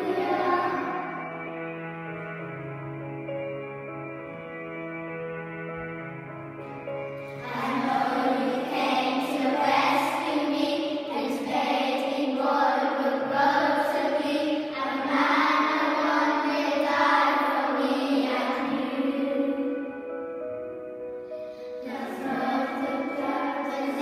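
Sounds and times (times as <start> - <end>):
children's choir singing a carol: 0.0 - 2.0, 7.2 - 20.3, 21.3 - 24.0
instrumental accompaniment: 0.0 - 13.6, 14.2 - 24.0.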